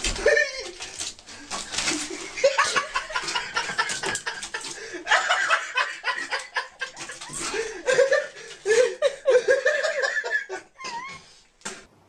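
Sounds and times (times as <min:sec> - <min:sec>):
people laughing: 0:02.0 - 0:11.1.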